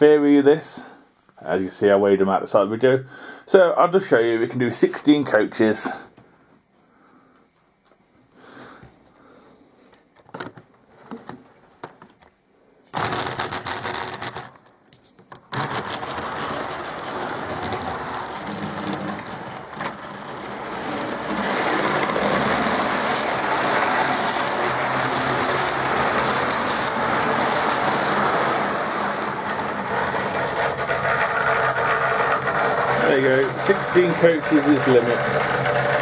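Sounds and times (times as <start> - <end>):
model train wheels on rails: 12.9 - 14.7, 15.3 - 36.0
small electric motor whirring: 13.0 - 14.6, 15.5 - 36.0.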